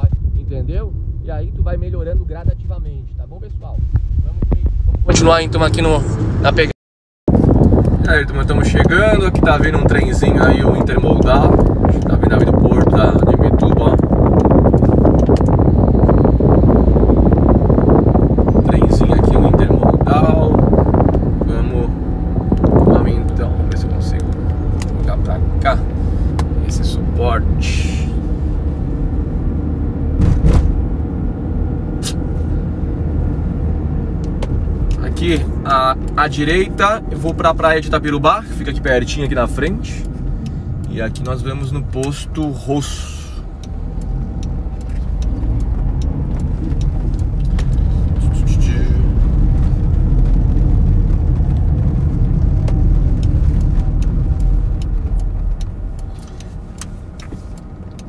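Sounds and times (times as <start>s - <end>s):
road noise: 0.0s - 58.0s
van engine rumble and tyres: 0.0s - 58.0s
thump: 30.2s - 30.8s.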